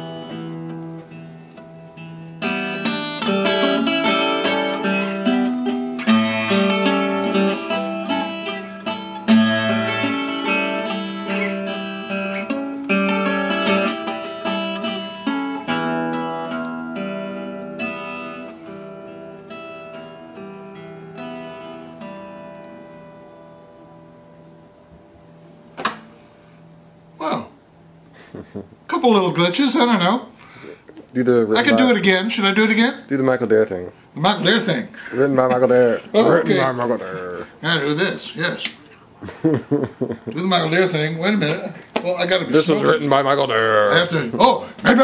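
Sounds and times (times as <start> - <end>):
fingerpicked acoustic guitar: 0.0 - 28.7, 34.3 - 38.0.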